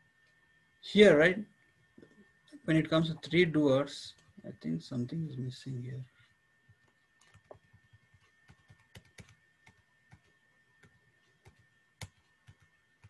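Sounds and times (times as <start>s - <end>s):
computer keys clicking: 6.8s - 13.0s.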